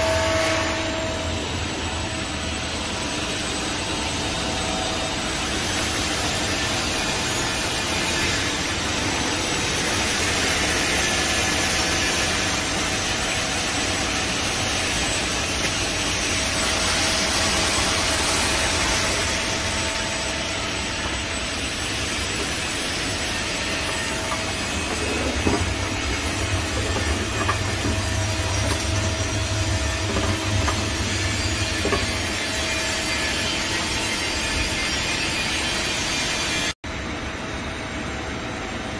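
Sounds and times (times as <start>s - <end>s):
lathe machine hum: 0.0s - 36.7s
deeper hum: 13.0s - 34.1s.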